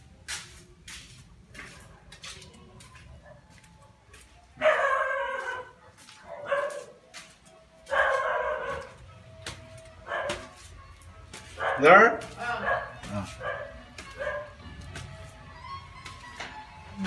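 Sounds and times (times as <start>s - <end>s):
dog barking: 4.6s - 7.1s, 7.8s - 9.0s, 10.0s - 10.5s, 11.5s - 14.6s.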